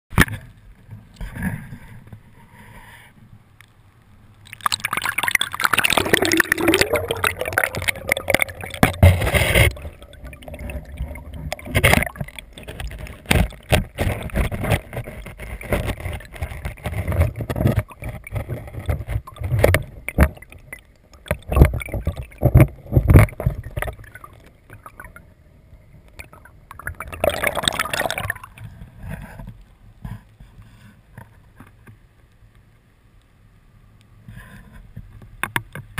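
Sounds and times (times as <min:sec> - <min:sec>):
river water splashing and gurgling: 0:04.4 - 0:25.3, 0:26.1 - 0:28.8
underwater bubbling: 0:04.4 - 0:29.2.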